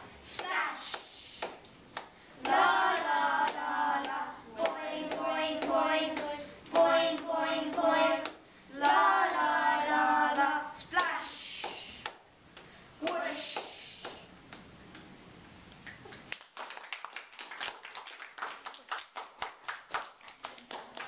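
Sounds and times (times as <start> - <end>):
clap keeping time: 0.3 - 14.7, 15.8 - 21.0
children singing: 2.4 - 11.3.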